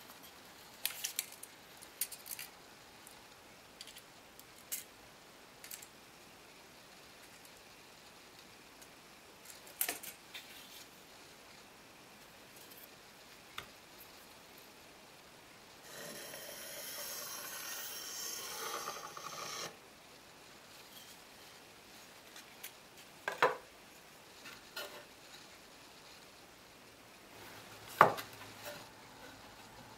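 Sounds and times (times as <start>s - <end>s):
pencil scratching across wood: 15.9s - 19.8s.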